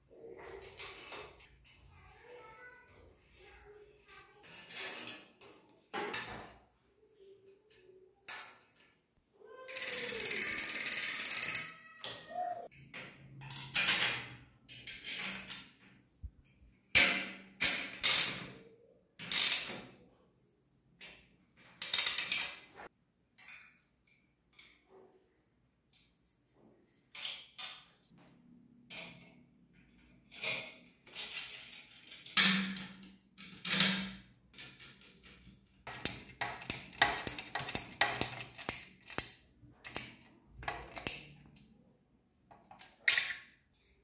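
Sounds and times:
ratchet wrench clicking: 0:09.8 - 0:11.8.

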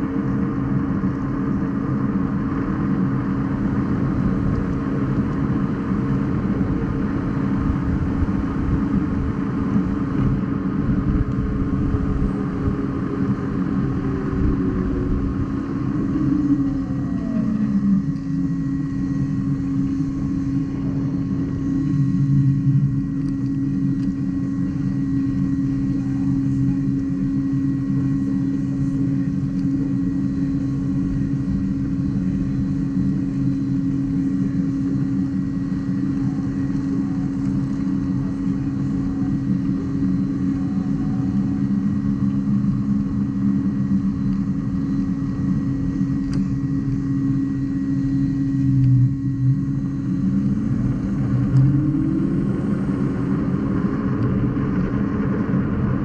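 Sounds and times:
road and wind rumble: 0:01.9 - 0:23.0
electric motor whining: 0:06.4 - 0:34.3, 0:35.1 - 0:55.0
tone sliding down in pitch: 0:48.7 - 0:52.5.

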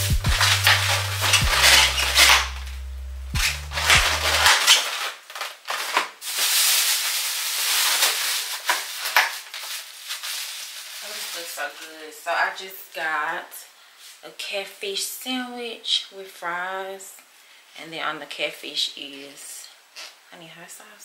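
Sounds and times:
background music: 0:00.0 - 0:04.4
plastic bag crinkling: 0:00.0 - 0:12.5.

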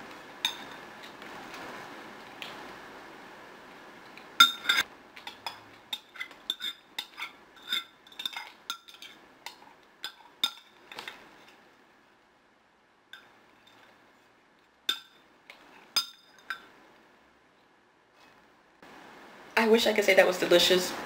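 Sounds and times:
metal spoon clinking on glass mug: 0:00.4 - 0:00.8, 0:04.4 - 0:10.7.

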